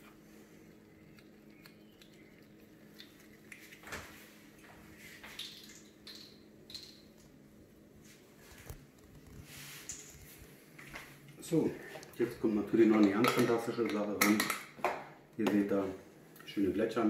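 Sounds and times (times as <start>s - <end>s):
low hum: 0.0s - 12.8s.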